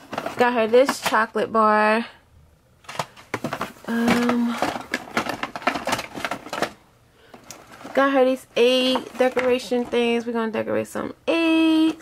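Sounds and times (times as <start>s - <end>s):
plastic packs and boxes rustling: 0.0s - 1.4s, 2.8s - 10.6s.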